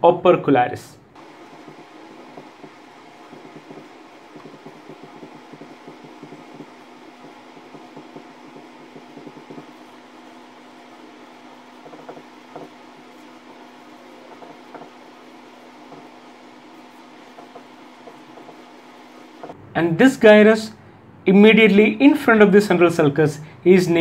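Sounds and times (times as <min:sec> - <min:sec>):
steady low hum: 0:00.9 - 0:21.3
marker pen writing on board: 0:01.2 - 0:19.6.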